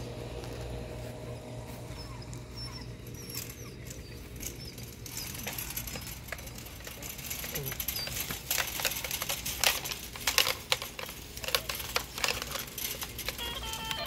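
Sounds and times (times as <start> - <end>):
steady low rumble: 0.0 - 7.6
puppies squeaking and whimpering: 0.9 - 14.0.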